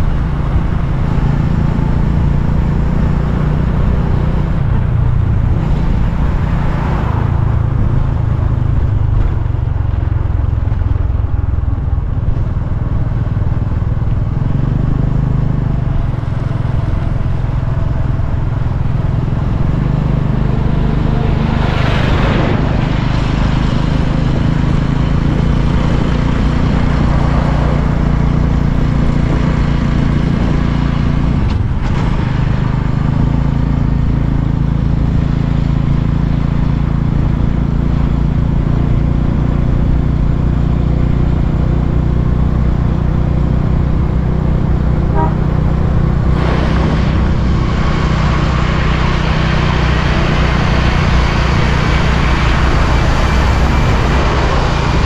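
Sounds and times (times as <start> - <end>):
motorcycle engine running: 0.0 - 55.0
road and wind noise: 0.0 - 55.0
vehicle passing: 4.4 - 9.2, 15.1 - 33.2, 43.6 - 55.0.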